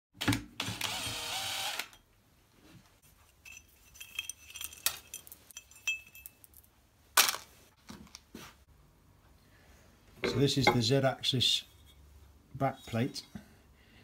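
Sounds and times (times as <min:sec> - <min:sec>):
cordless drill running: 0:00.6 - 0:01.9
light metallic clinks: 0:03.2 - 0:06.7.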